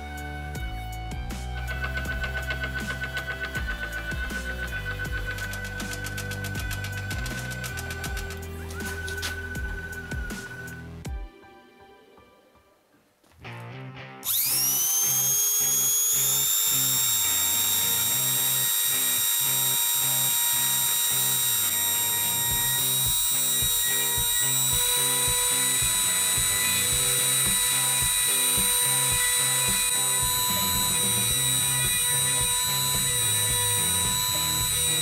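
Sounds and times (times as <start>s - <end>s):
music with steady beat: 0.0s - 11.9s, 20.9s - 35.0s
rotary engraver whining: 1.6s - 10.7s, 14.2s - 35.0s.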